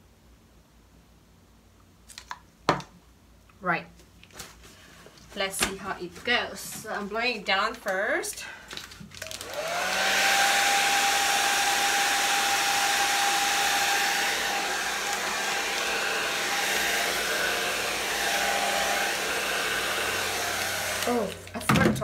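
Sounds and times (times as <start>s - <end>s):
hair dryer running: 9.2s - 21.6s.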